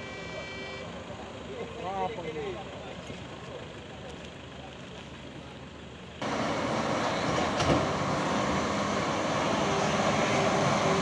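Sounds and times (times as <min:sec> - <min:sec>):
distant vehicle noise: 0:00.0 - 0:11.0
truck diesel engine under load: 0:00.0 - 0:11.0.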